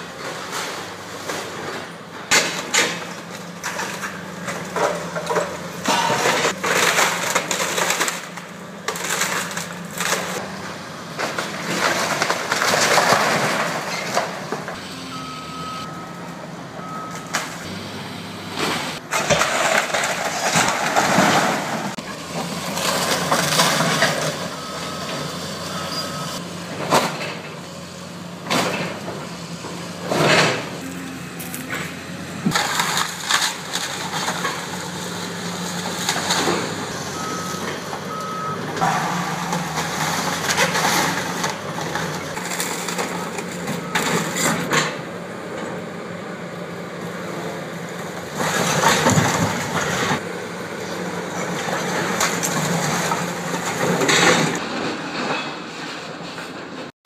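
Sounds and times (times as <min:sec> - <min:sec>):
excavator diesel engine running: 0:00.0 - 0:56.9
brick building crashing down: 0:11.2 - 0:14.6, 0:18.9 - 0:24.7
short beeps: 0:14.8 - 0:17.5, 0:25.7 - 0:26.4.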